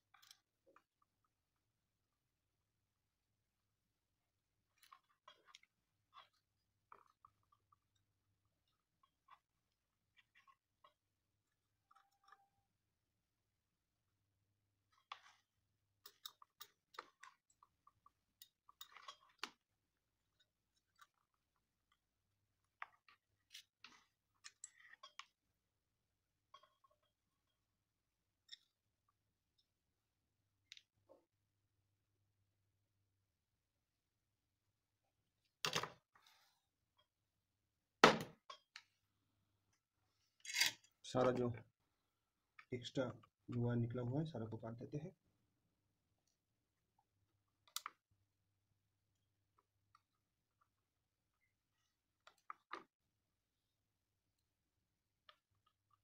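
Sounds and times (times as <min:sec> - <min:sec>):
soldering clicks and scrapes: 0:40.4 - 0:40.9.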